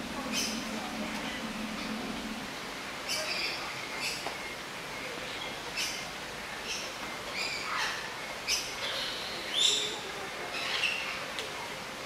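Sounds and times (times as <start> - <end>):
birds chirping: 0.0 - 4.6
steady background noise: 0.0 - 12.0.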